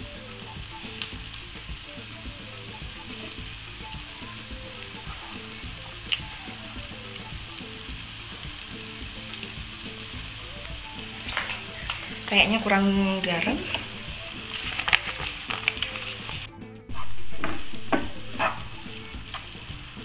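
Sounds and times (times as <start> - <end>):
food sizzling in a frying pan: 0.0 - 20.0
utensil scraping pan: 11.2 - 19.1.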